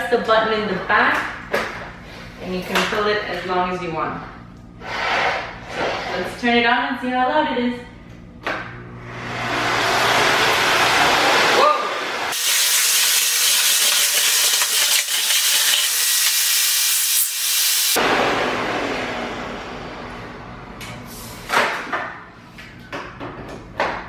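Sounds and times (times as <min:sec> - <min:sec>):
vacuum cleaner running: 0:08.5 - 0:21.4
vacuum motor winding down: 0:09.0 - 0:20.7.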